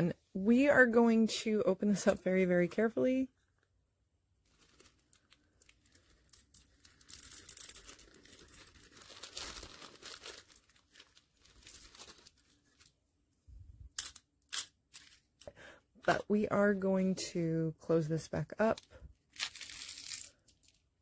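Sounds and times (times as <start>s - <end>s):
plastic wrapping crinkling: 4.4s - 13.0s, 18.6s - 20.9s.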